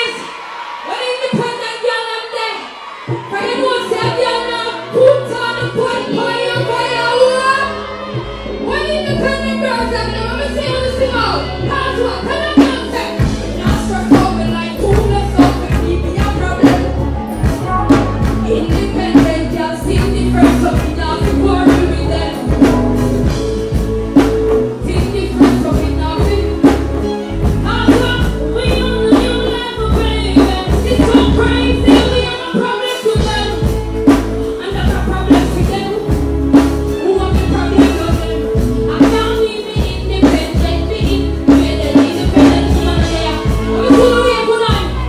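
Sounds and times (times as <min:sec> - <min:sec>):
woman singing into a microphone: 0:08.6 - 0:22.8, 0:24.8 - 0:45.0.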